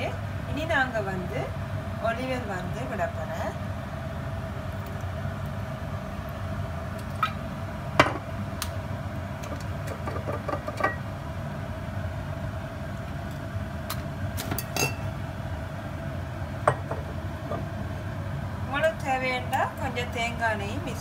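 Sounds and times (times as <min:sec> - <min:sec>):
oil ticking and popping in pan: 0:09.4 - 0:11.0.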